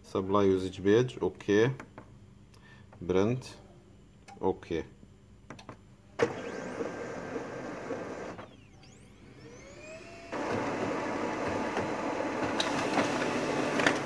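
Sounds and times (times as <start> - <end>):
laser printer mechanism running: 6.2 - 14.0
printer whines sweeping in pitch: 6.2 - 14.0
printer click: 10.4 - 14.0.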